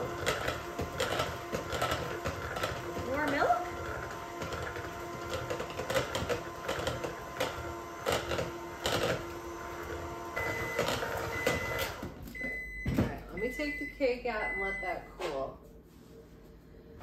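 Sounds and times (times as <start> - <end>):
electric hand mixer running: 0.0 - 12.1.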